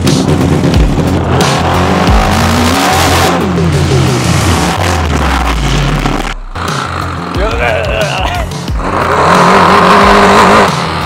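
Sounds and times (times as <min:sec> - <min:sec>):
buggy engine revving: 0:00.0 - 0:11.0.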